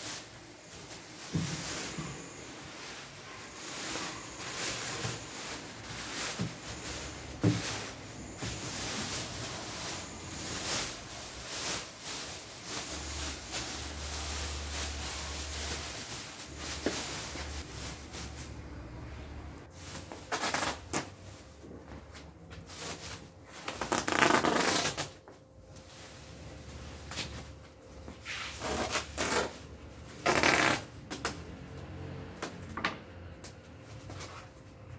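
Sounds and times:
plastic bags crinkling: 0.0s - 18.8s, 19.7s - 25.2s.

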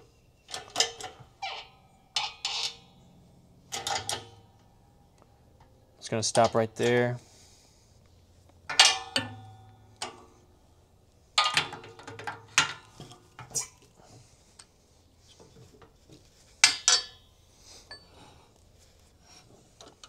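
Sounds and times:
metal tooling clanking: 0.5s - 3.1s, 3.7s - 4.8s, 8.6s - 10.4s, 11.4s - 13.6s, 16.6s - 18.2s.

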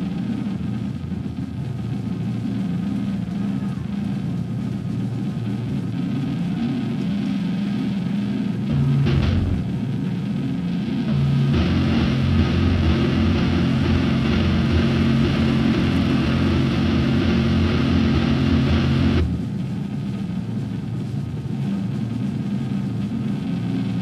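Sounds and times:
amplifier droning hum: 0.0s - 24.0s
distorted electric guitar chord: 8.6s - 10.0s, 10.8s - 19.5s.

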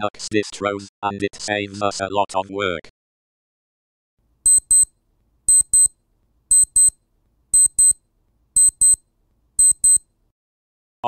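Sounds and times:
high-pitched electronic double beep: 4.5s - 4.9s, 5.5s - 5.9s, 6.5s - 6.9s, 7.6s - 8.0s, 8.6s - 9.0s, 9.6s - 10.0s.

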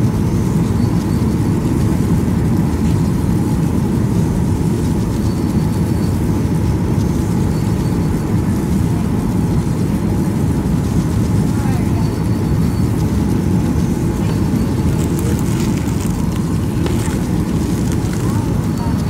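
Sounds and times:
faint steady hum: 7.6s - 19.0s
engine rumble and rushing air: 12.5s - 19.0s.

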